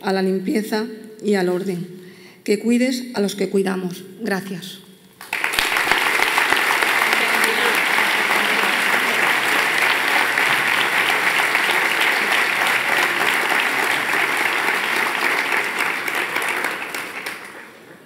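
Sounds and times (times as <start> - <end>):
audience applauding: 5.2 - 18.0.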